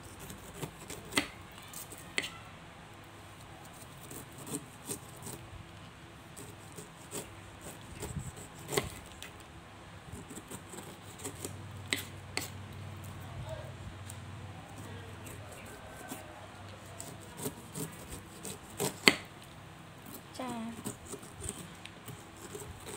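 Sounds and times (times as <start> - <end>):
knife cutting pineapple rind: 0.0 - 2.4, 3.6 - 5.4, 6.4 - 9.3, 10.1 - 13.3, 14.6 - 19.4, 20.0 - 22.9.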